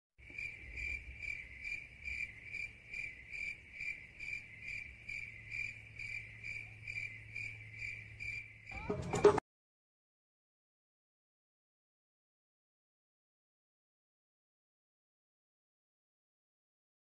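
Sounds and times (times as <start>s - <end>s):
cricket chirping: 0.2s - 9.4s.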